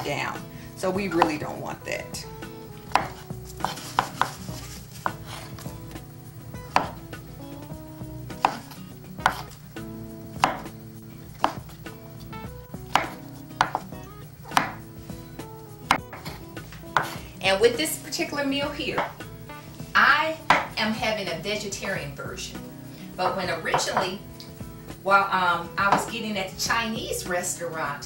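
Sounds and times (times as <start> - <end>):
knife chopping on wooden board: 2.9 - 6.0, 6.6 - 7.0, 8.3 - 9.6, 10.4 - 11.8, 12.9 - 14.9, 15.9 - 17.2, 20.5 - 20.8, 23.7 - 24.1.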